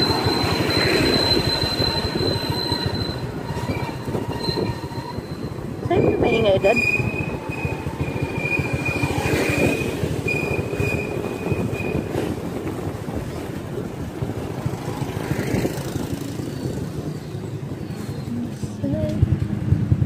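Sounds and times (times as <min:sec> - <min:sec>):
high-pitched squeal: 0:00.0 - 0:12.1
wind on microphone: 0:00.0 - 0:20.0
motorcycle engine rumble: 0:12.0 - 0:20.0.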